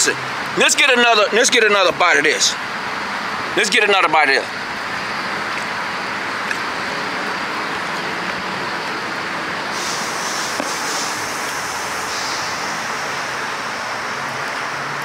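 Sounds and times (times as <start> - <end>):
steady rushing noise: 4.3 - 15.0.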